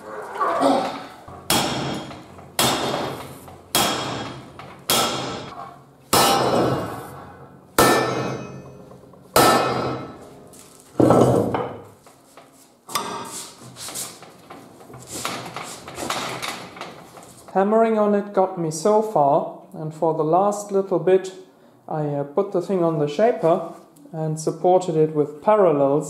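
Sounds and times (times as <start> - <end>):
hammer striking steel: 1.3 - 11.8, 12.9 - 13.4.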